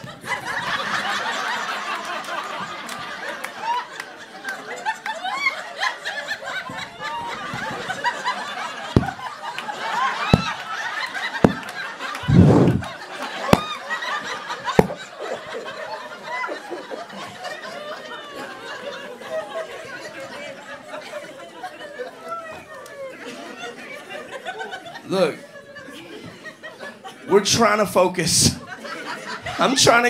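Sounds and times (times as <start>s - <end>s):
audience laughing: 0.0s - 27.4s, 28.2s - 30.0s
sharp claps or mic knocks: 9.0s - 9.2s, 10.4s - 10.6s, 11.4s - 12.9s, 14.8s - 15.0s
loud low thud: 12.2s - 12.9s.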